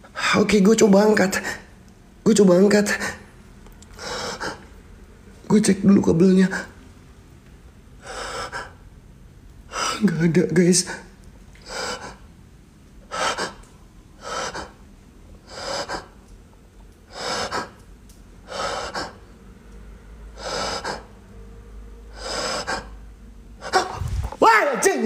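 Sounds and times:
man breathing heavily: 0:03.9 - 0:04.8, 0:08.0 - 0:08.8, 0:09.7 - 0:10.1, 0:10.9 - 0:12.3, 0:13.1 - 0:14.8, 0:15.4 - 0:16.2, 0:17.0 - 0:17.8, 0:18.4 - 0:19.3, 0:20.3 - 0:21.2, 0:22.1 - 0:24.4.

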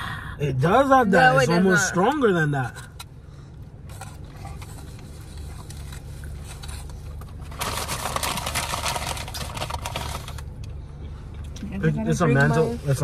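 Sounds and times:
low hum inside car: 0:00.0 - 0:13.0
paper wrapping crinkling: 0:04.0 - 0:10.5.

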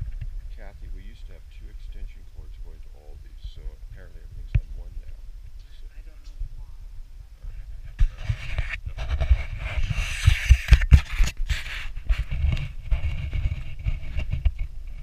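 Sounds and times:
camera handling rumble and thumps: 0:00.0 - 0:00.4, 0:07.5 - 0:15.0
faint hiss: 0:00.0 - 0:08.9.

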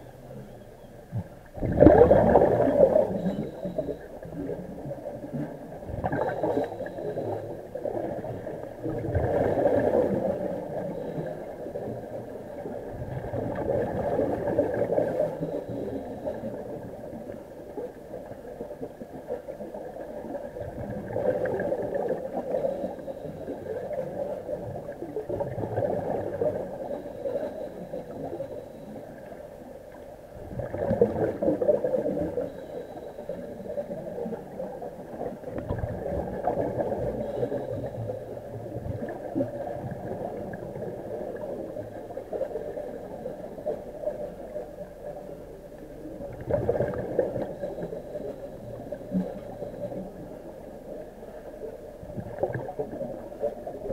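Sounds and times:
diver breathing underwater: 0:25.9 - 0:29.2.

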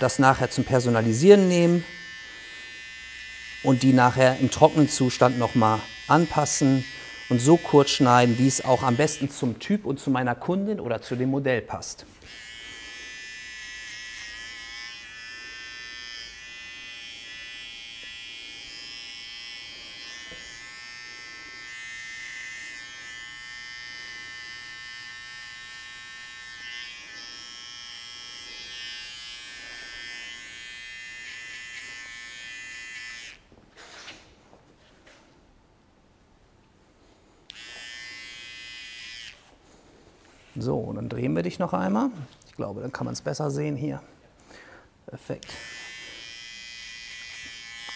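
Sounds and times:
electric hair clipper buzzing: 0:00.0 - 0:09.6, 0:12.1 - 0:34.2, 0:37.4 - 0:39.6, 0:45.3 - 0:47.9.

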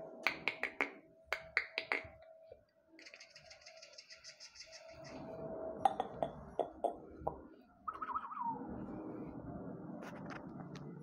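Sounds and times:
sharp taps and knocks: 0:00.2 - 0:02.2.

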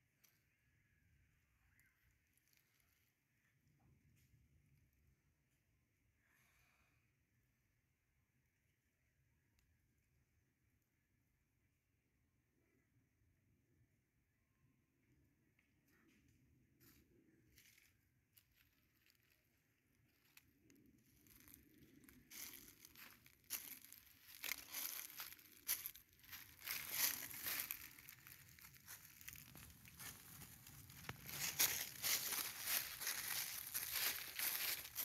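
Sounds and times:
dry leaves crunching underfoot: 0:21.1 - 0:35.0.

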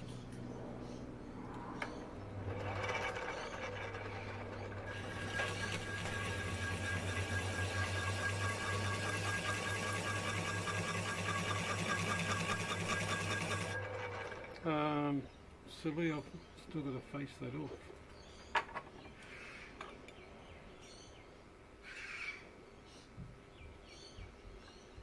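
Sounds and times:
blade scraping spinning metal: 0:01.8 - 0:14.7
lathe motor humming: 0:02.0 - 0:15.0.

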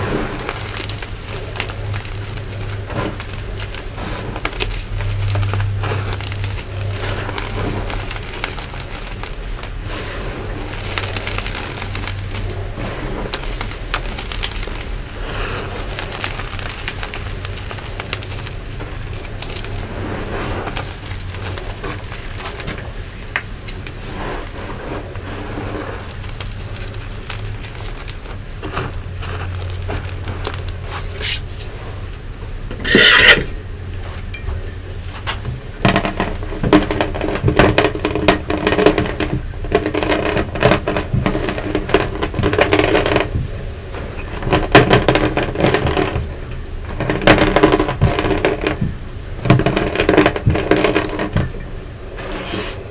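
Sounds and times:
hands crunching powder: 0:00.0 - 0:31.7
rolling pin crushing lumps: 0:00.0 - 0:31.7, 0:32.4 - 0:52.9.

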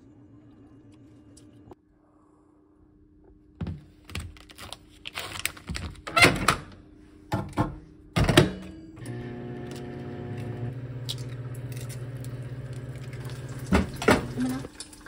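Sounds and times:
microwave running hum: 0:06.4 - 0:14.9.

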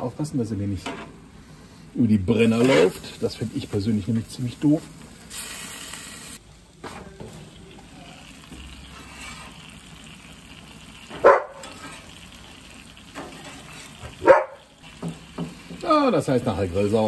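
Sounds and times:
meat sizzling on a griddle: 0:02.3 - 0:06.4, 0:07.0 - 0:17.0.

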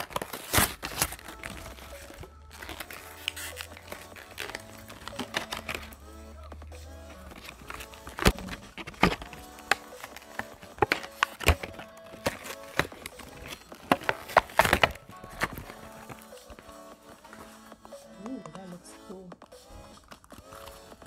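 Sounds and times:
cardboard and plastic tearing: 0:00.0 - 0:06.0, 0:07.2 - 0:16.6
quiet background music: 0:00.0 - 0:21.0.

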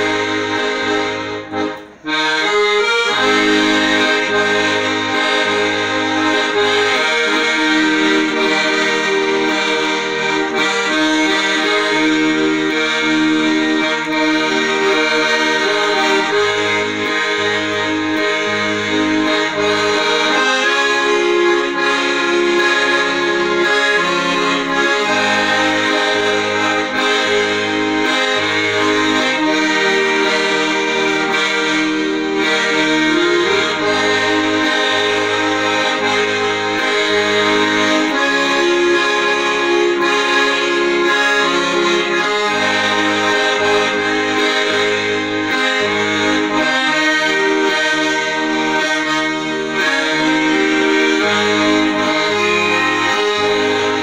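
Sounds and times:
accordion melody: 0:00.0 - 0:54.0.

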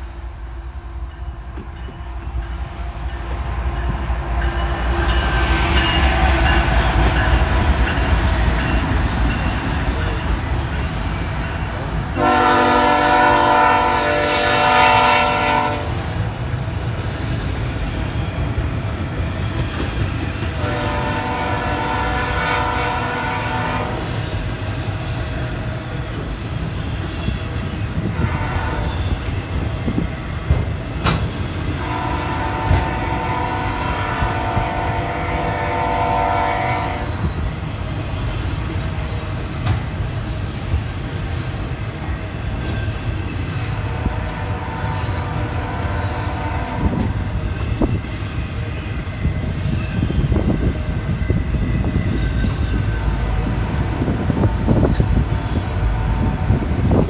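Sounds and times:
low rumble of passing train: 0:00.0 - 0:57.0
train horn blasts: 0:12.1 - 0:16.1, 0:20.6 - 0:24.2, 0:28.0 - 0:29.2, 0:31.8 - 0:37.3, 0:43.7 - 0:47.2, 0:52.9 - 0:57.0.

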